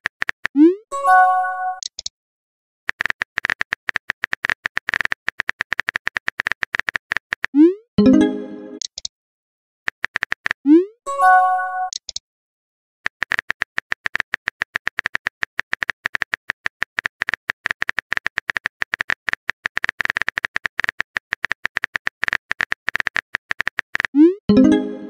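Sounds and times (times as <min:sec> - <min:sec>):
on-screen keyboard typing clicks: 0:00.0 - 0:02.1, 0:02.9 - 0:09.1, 0:09.9 - 0:12.2, 0:13.1 - 0:25.0
message notification tone: 0:00.6 - 0:01.8, 0:07.6 - 0:08.8, 0:10.7 - 0:12.0, 0:24.2 - 0:25.0.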